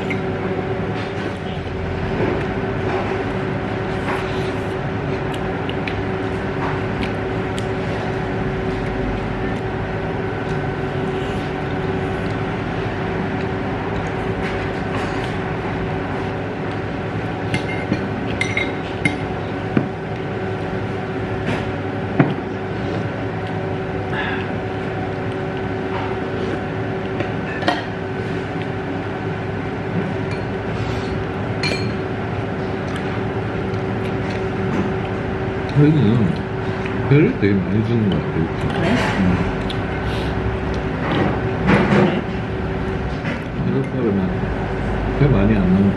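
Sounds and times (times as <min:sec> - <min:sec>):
dining room hum: 0:00.0 - 0:45.9
chopsticks and dishes clinking: 0:17.5 - 0:19.2, 0:31.6 - 0:32.0.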